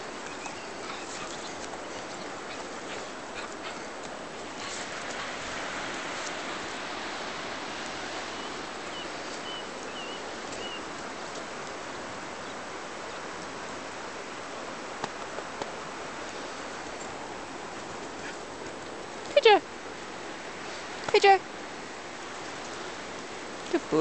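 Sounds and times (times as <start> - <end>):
flowing water rushing: 0.0 - 24.0
faint bird chirps: 8.3 - 10.9.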